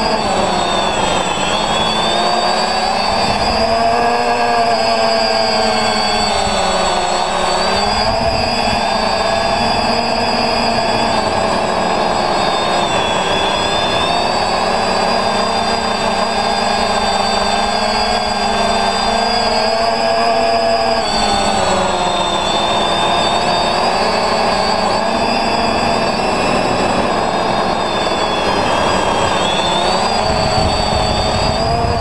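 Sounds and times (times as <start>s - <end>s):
drone motors whining: 0.0s - 32.0s.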